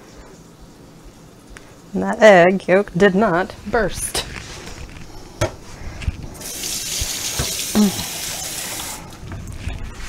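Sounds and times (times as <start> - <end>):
water running from tap: 6.4 - 9.2.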